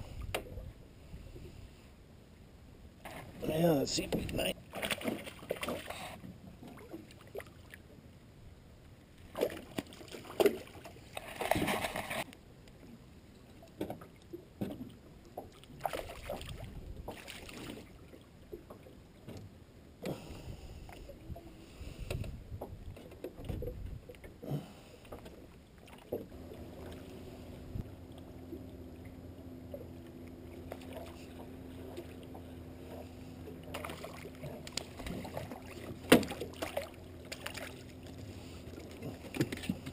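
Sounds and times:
steady low hum: 0:23.8 - 0:39.9
knocks in aluminum boat: 0:35.9 - 0:36.7.

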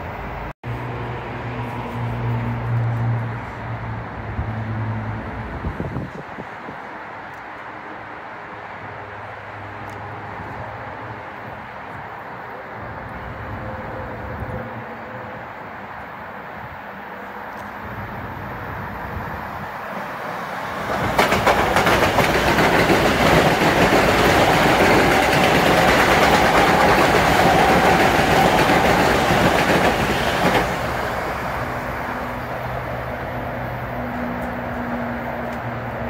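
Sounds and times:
train passing: 0:00.0 - 0:36.0
wheels clacking over rail joints: 0:20.6 - 0:31.2.

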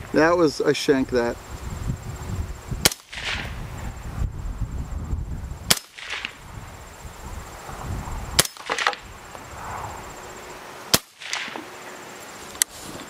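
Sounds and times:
suppressed rifle shots: 0:02.8 - 0:03.5, 0:05.7 - 0:06.4, 0:08.4 - 0:09.0, 0:10.9 - 0:11.7
shot echo: 0:02.8 - 0:03.6, 0:05.7 - 0:06.4, 0:08.4 - 0:09.0, 0:10.9 - 0:11.7.

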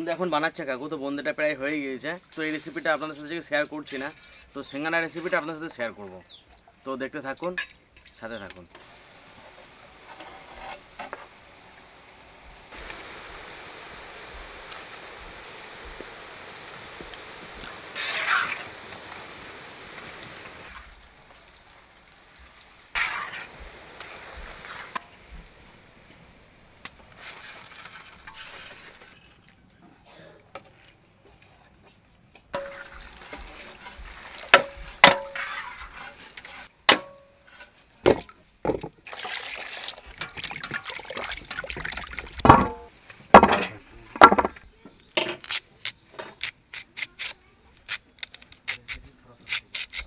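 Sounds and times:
peas sizzling in oil: 0:01.0 - 0:29.4, 0:32.5 - 0:43.4
carrot cutting strokes on blade: 0:46.4 - 0:50.0.

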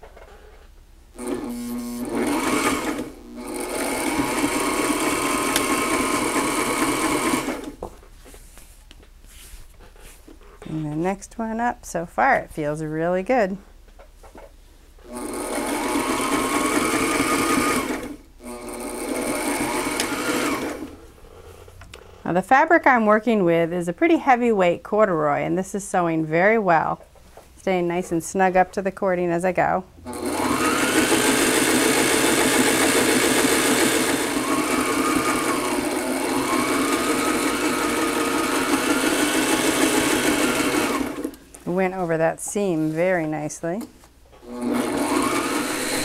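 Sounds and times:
sewing machine stitching: 0:01.2 - 0:07.8, 0:15.1 - 0:21.0, 0:30.1 - 0:41.4, 0:44.4 - 0:46.0.

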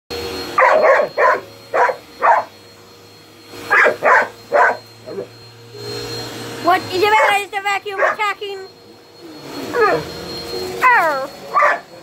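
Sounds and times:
dog barking: 0:00.6 - 0:02.5, 0:03.7 - 0:05.3, 0:07.9 - 0:08.3, 0:10.8 - 0:11.9.

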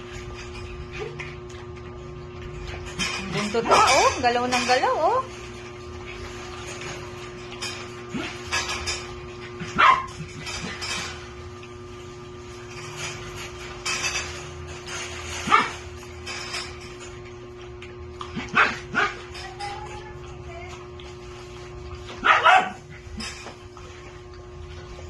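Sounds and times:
dog barking: 0:09.7 - 0:10.2, 0:15.4 - 0:15.8, 0:18.4 - 0:19.2, 0:22.2 - 0:22.8.

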